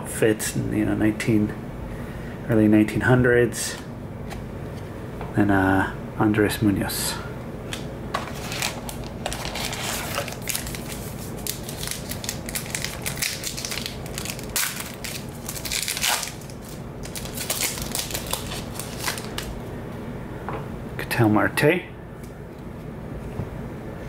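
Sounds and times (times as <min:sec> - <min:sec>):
foil wrapper crinkling and tearing: 0:08.3 - 0:19.6.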